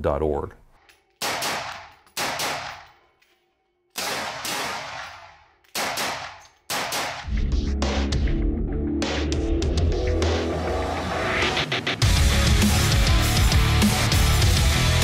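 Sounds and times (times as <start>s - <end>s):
rifle gunshots with echo: 1.2s - 3.0s, 4.0s - 7.3s
music: 7.2s - 15.0s.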